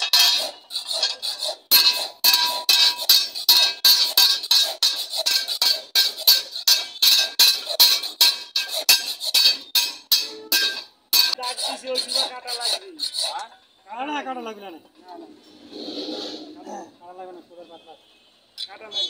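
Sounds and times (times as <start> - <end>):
hand file rasping on steel blade: 0.0 - 13.5
thin blade ringing: 1.8 - 11.4.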